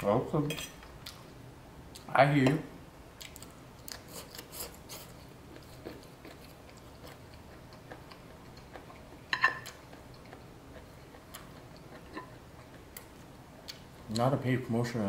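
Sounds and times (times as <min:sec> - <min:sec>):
person chewing food: 0:03.2 - 0:13.9.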